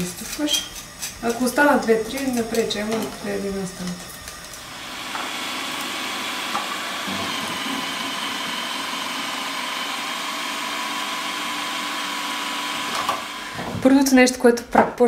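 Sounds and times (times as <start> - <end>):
food processor motor whine: 0.0 - 14.1.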